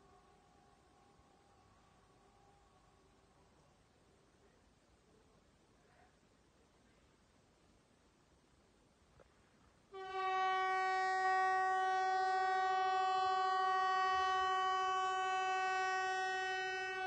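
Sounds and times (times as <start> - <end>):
warning siren horn tone: 10.0 - 17.0.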